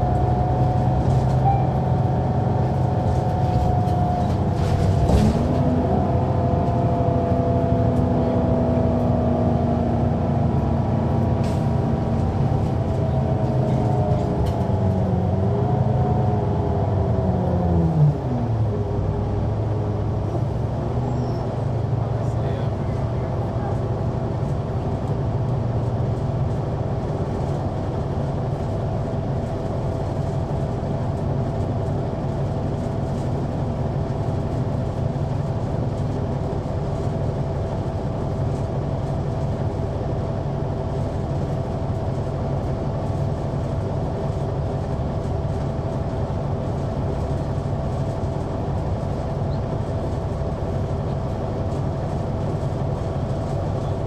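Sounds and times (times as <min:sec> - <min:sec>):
bus diesel engine droning: 0:00.0 - 0:54.0
road noise: 0:00.0 - 0:54.0.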